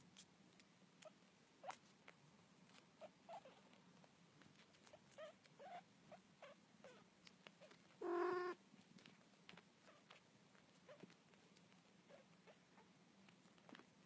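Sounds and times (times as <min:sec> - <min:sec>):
kittens squeaking: 0:04.8 - 0:08.6
kitten meow: 0:08.0 - 0:08.6.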